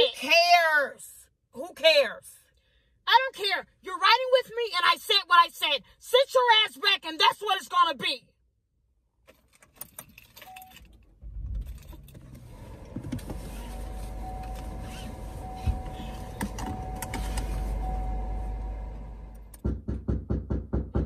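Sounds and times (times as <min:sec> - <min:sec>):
car low rumble: 0:11.1 - 0:19.9
seatbelt drawn and buckled: 0:11.6 - 0:17.9
faint steady whine: 0:13.2 - 0:19.5.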